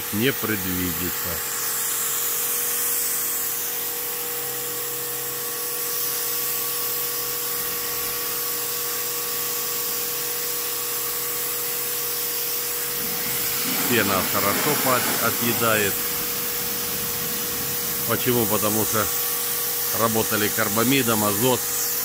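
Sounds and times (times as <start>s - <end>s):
pressure washer pump humming: 0.0s - 22.0s
spray hissing: 12.1s - 22.0s.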